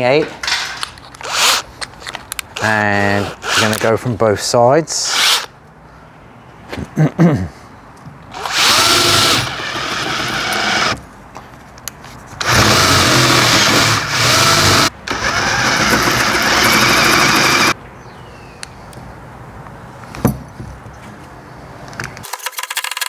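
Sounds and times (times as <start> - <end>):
drill cutting through wood: 8.4 - 11.0, 12.4 - 17.8.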